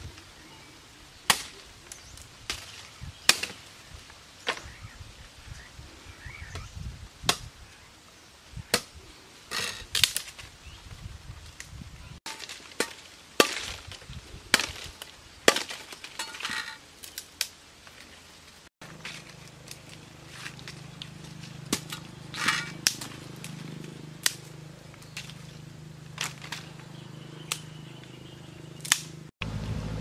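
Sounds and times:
knife chopping wooden branches: 1.3 - 3.7, 12.3 - 17.5, 18.8 - 28.1, 28.8 - 29.2
dry leaves crackling: 9.1 - 30.0
twigs cracking: 9.5 - 10.6, 11.5 - 28.2, 28.8 - 29.3.

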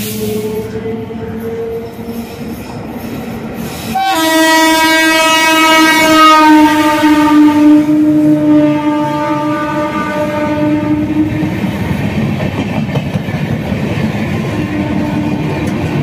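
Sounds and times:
train air horn blast: 0.0 - 2.3, 3.8 - 11.6, 14.6 - 15.9.

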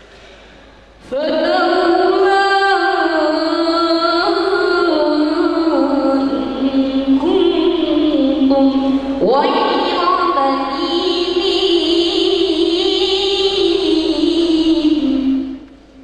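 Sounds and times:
boy singing through a microphone: 1.0 - 15.7.

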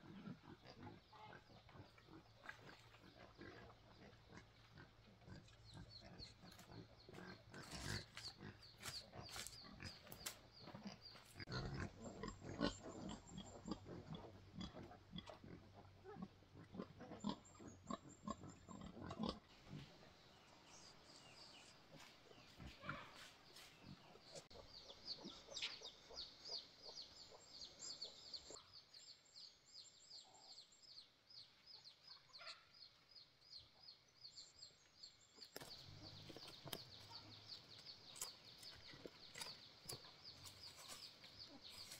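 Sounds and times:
pigs grunting: 0.0 - 28.6.

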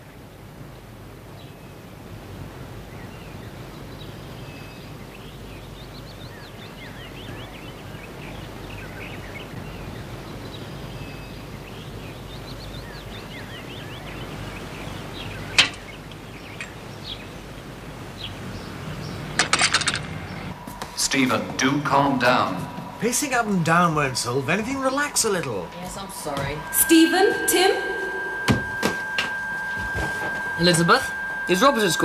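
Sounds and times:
small birds chirping: 0.0 - 19.4
steady low background rumble: 0.3 - 32.0
sharp knock: 28.2 - 30.5.

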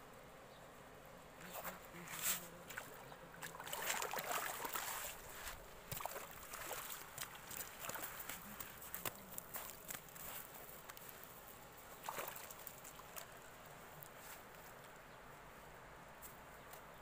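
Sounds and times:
water splashing and dripping: 2.8 - 8.4.

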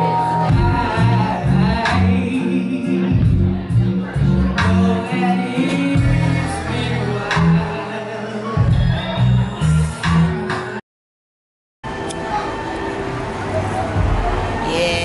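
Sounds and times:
deep bass line: 0.0 - 7.9, 8.6 - 10.5
person singing into a microphone: 0.0 - 9.2
backing track: 0.0 - 10.8.

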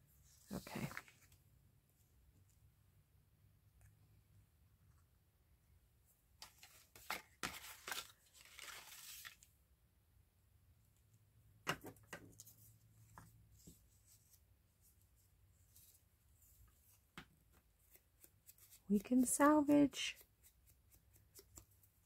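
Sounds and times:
paper rustling: 6.4 - 9.5
paper tearing: 7.4 - 9.4.

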